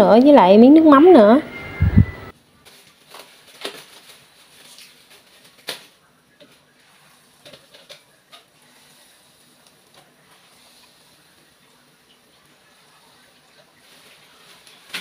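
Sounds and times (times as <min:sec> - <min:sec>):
shrimp frying in hot oil: 0:06.4 - 0:15.0.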